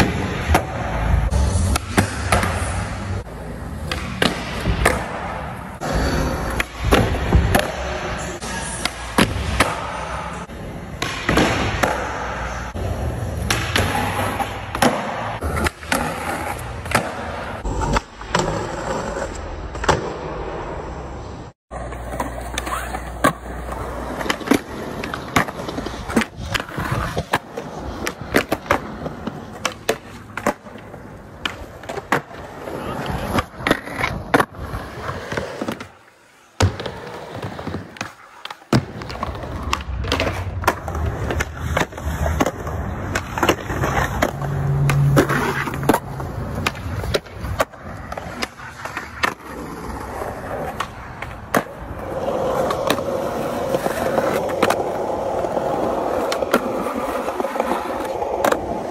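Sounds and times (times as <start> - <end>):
skateboard wheels rolling on concrete: 0.0 - 58.9
skateboard clacks: 21.7 - 58.9.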